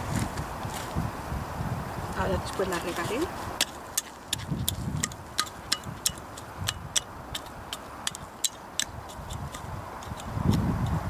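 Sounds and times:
hoe blade clicking on stones: 2.9s - 11.0s.

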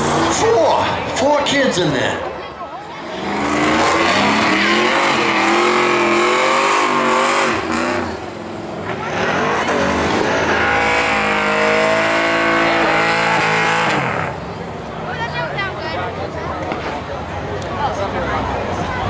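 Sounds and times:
truck engine revving: 0.0s - 1.2s, 2.8s - 14.8s
tires spinning: 0.0s - 1.8s, 2.8s - 15.5s.

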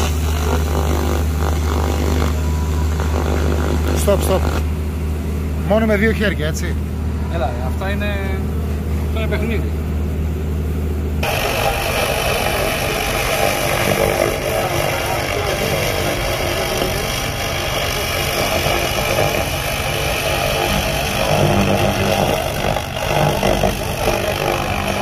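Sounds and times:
low hum: 0.0s - 25.0s
laser crackling hiss: 11.2s - 25.0s.

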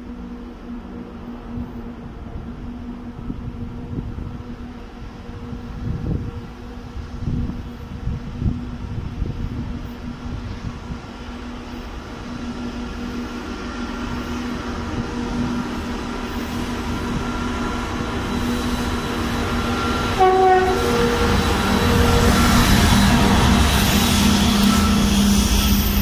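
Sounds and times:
diesel locomotive engine drone: 0.0s - 26.0s
locomotive horn: 19.7s - 26.0s.

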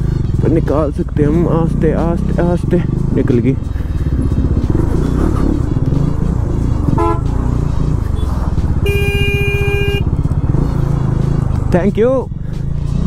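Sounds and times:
motorcycle engine running low: 0.0s - 11.8s
motorcycle horn beeping: 6.9s - 7.5s, 8.1s - 10.2s.

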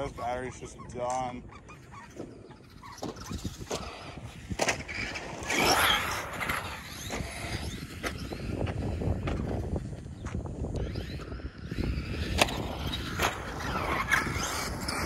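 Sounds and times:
rc car tyres rumbling: 0.0s - 15.0s.

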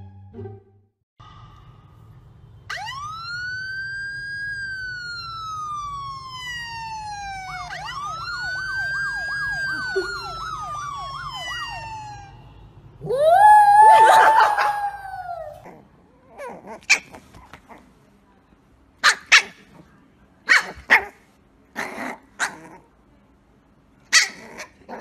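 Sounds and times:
emergency vehicle siren wailing: 2.6s - 15.6s.

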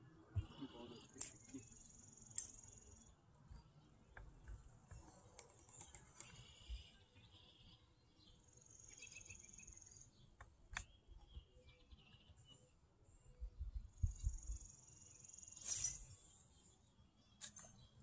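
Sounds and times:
wildlife chirping and trilling: 0.3s - 3.2s.

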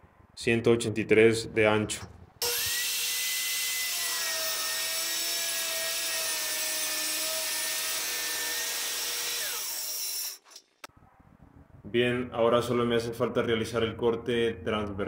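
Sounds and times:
circular saw cutting board: 2.4s - 10.9s.

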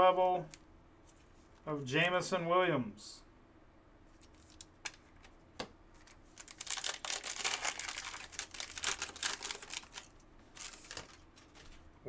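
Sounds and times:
foil wrapper crinkling and tearing: 4.2s - 5.2s, 6.0s - 11.8s.

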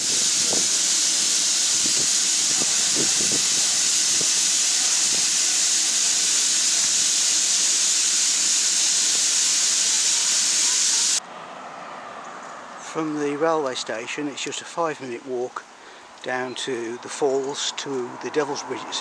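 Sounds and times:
steam hissing from locomotive: 0.0s - 11.2s.

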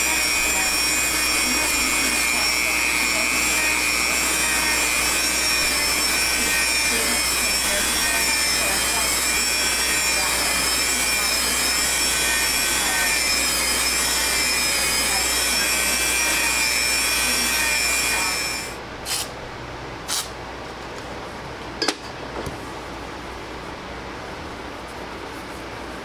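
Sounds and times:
belt grinder grinding knife blade: 0.0s - 19.3s.

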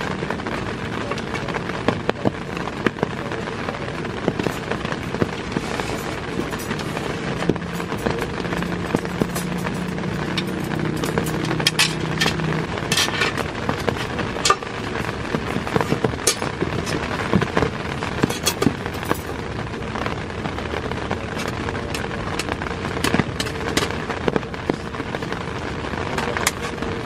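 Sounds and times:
rain pattering on tent: 0.0s - 27.0s
metal clinks and scrapes: 5.4s - 17.4s.

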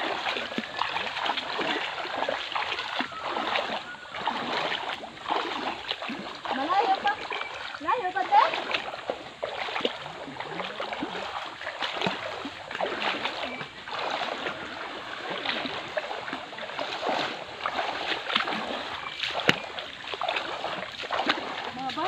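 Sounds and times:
feet splashing in water: 0.0s - 22.0s.

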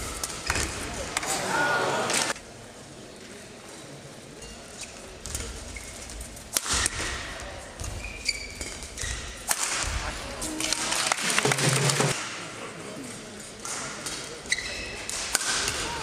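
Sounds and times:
shoes squeaking on court floor: 7.8s - 9.4s, 14.4s - 15.1s.

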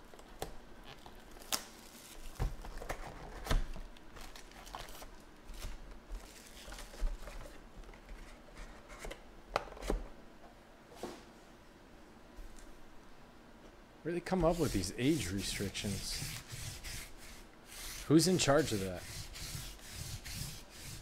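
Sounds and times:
plastic wrap crinkling: 0.8s - 2.9s, 4.1s - 7.4s.

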